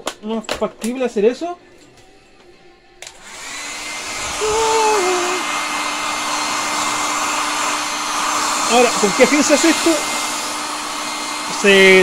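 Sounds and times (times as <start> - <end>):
hair dryer switch click: 3.0 - 3.4
hair dryer blowing: 3.0 - 12.0.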